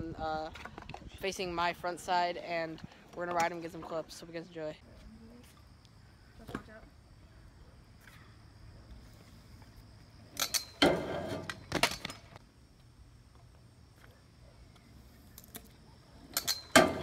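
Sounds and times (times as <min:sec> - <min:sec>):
scooter clanking against metal rail: 0:10.4 - 0:12.3, 0:16.3 - 0:17.0.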